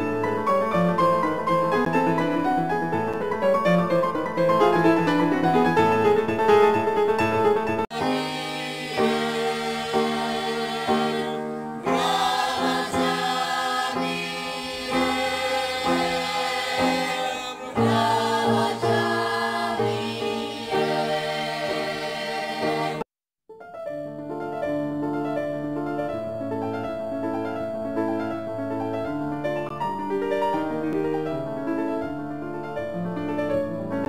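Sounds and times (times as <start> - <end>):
choir singing: 7.9 - 23.1.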